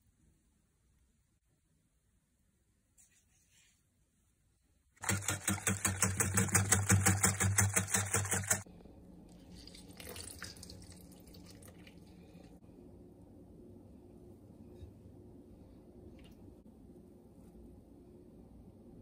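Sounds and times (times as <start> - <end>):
faint handling sounds: 2.9 - 4.4
liquid beaten in glass bowl: 5.0 - 8.6.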